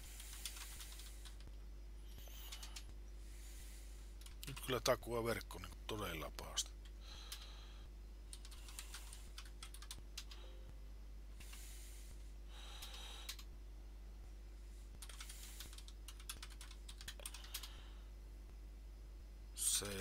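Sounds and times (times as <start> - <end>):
steady low hum: 0.0 - 20.0
keyboard typing: 0.1 - 1.6, 2.2 - 2.9, 4.2 - 4.8, 8.3 - 10.6, 12.8 - 13.5, 15.0 - 17.7.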